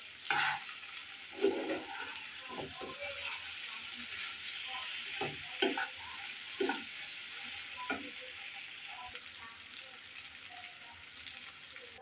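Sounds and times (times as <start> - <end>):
spatula stirring and scraping pan: 0.0 - 8.7
vegetables sizzling in oil: 0.0 - 12.0.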